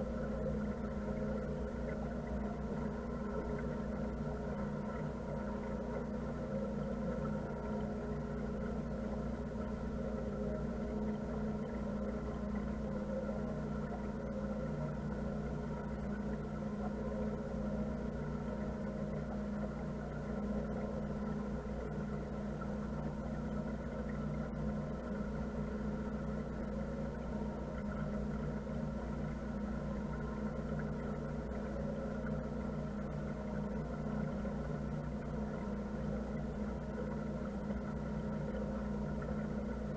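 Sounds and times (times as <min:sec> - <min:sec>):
boat engine humming: 0:00.0 - 0:39.9.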